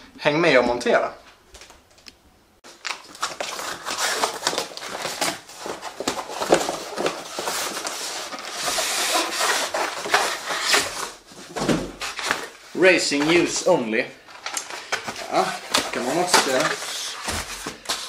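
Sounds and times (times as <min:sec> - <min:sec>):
cardboard box rustling and scraping: 0:03.4 - 0:12.6, 0:14.9 - 0:18.0.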